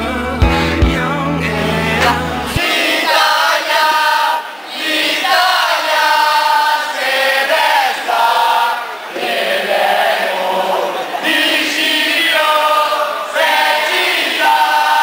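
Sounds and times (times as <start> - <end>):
young people singing in unison: 0.0 - 15.0.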